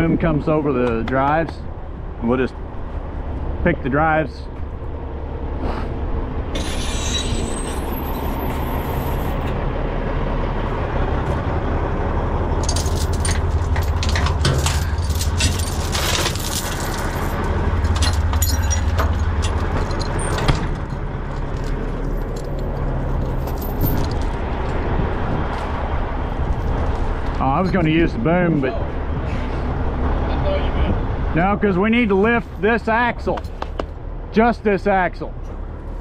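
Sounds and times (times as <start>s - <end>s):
diesel engine running: 0.0s - 36.0s
steel chains clanking and rattling: 6.5s - 9.5s, 12.6s - 24.8s.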